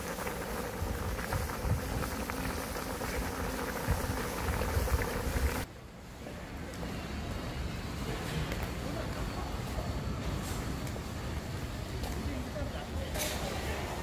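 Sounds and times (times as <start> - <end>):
soup bubbling at a boil: 0.0 - 5.7
outdoor hum: 0.0 - 12.4.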